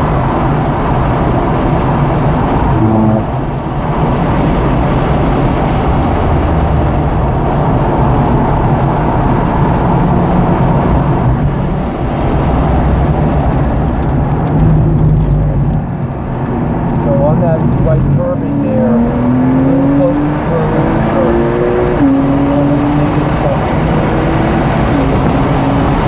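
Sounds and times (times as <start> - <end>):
car engine running: 0.0 - 26.0
road noise inside a car: 0.0 - 26.0.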